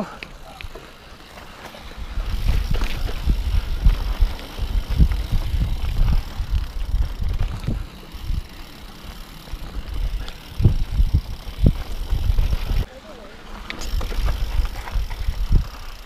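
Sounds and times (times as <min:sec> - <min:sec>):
bike tyres rumbling over rocky ground: 0:00.7 - 0:12.9, 0:13.5 - 0:16.0
wind buffeting microphone: 0:01.9 - 0:08.7, 0:09.5 - 0:12.9, 0:13.8 - 0:16.0.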